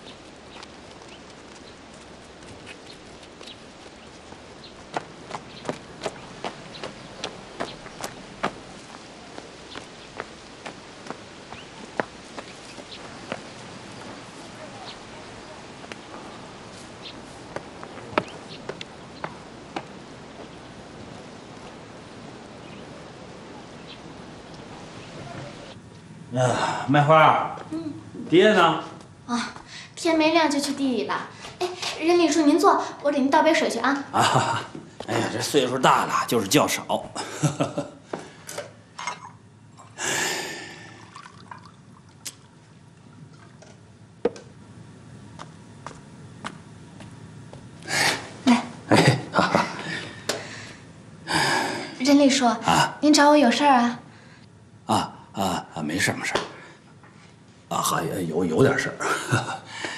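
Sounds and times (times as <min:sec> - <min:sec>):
man's footsteps: 0:00.0 - 0:21.9, 0:34.7 - 0:36.0, 0:43.3 - 0:48.4
steady background hiss: 0:00.0 - 0:59.9
hot water poured into bowl: 0:40.8 - 0:42.2.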